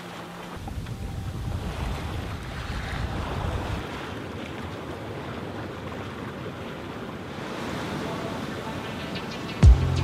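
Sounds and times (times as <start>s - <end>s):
water rushing along boat hull: 0.0s - 10.0s
wind buffeting microphone: 0.6s - 4.2s.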